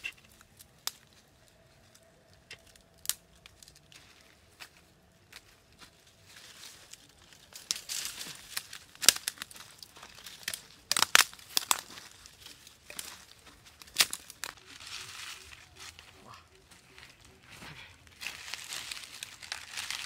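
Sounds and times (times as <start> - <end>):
twigs snapping: 0.0 - 1.2, 1.8 - 4.2, 6.4 - 16.1, 18.0 - 20.0
twigs and leaves crackling: 0.0 - 20.0.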